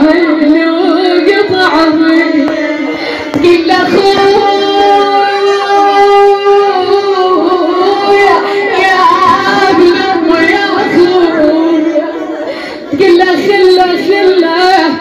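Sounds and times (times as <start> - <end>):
woman singing a lament: 0.0 - 15.0.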